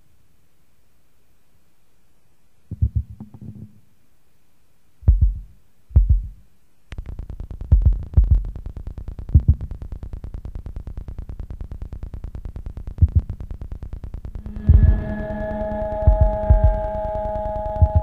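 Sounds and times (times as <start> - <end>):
deep thumps: 2.7 - 3.7, 5.1 - 6.4, 7.7 - 8.5
low drone: 14.3 - 18.0
heavy low booms: 14.4 - 18.0.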